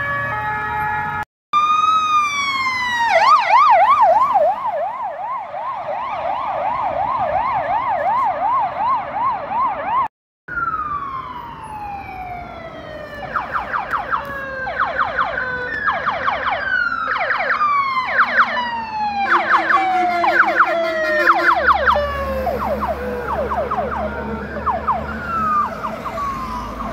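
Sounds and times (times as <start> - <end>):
emergency siren wailing: 0.0 - 26.9
police siren yelp: 0.0 - 26.9
heavy truck engine rumbling: 19.0 - 26.9.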